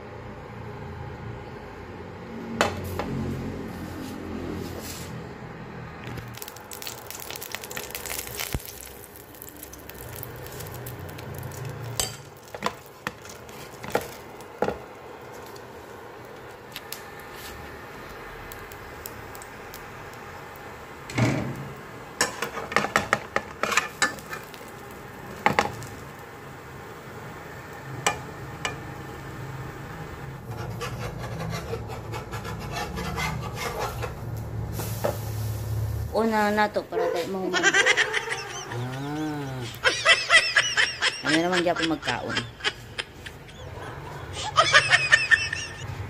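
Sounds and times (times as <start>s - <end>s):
utensils clinking on frying pan: 11.6s - 14.1s, 22.2s - 24.6s
metal spatula scraping pan: 30.5s - 34.4s.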